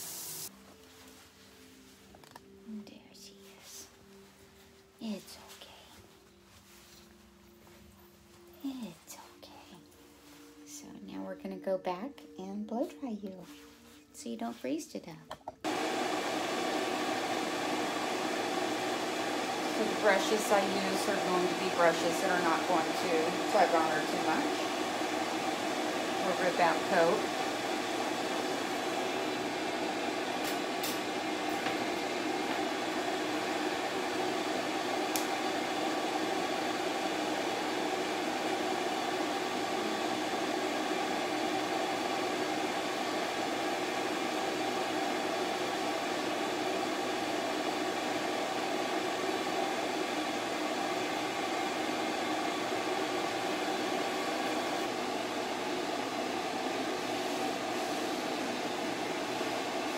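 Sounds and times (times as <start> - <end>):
dryer blowing: 0.0 - 0.5, 15.6 - 59.9.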